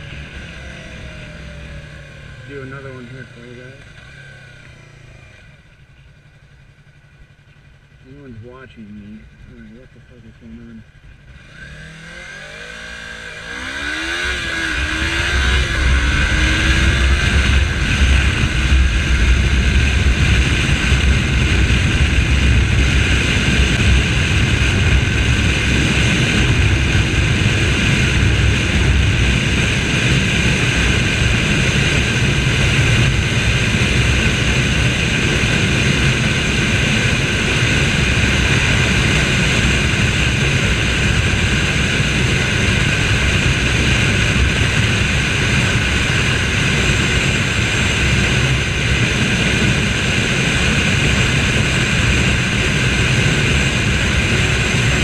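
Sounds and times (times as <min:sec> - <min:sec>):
motorcycle engine at high revs: 0:00.0 - 0:55.0
wind rushing on microphone: 0:13.7 - 0:55.0.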